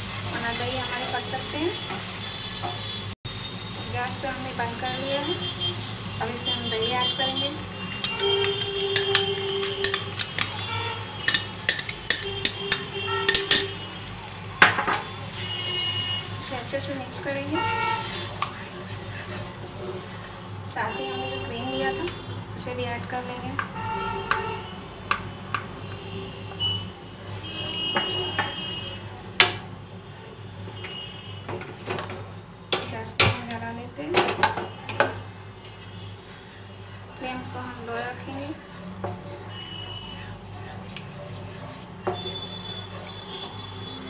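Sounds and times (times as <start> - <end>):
spatula scraping frying pan: 7.7 - 14.0, 16.8 - 20.5, 35.8 - 43.2
spoon clinking against a bowl: 8.0 - 13.9.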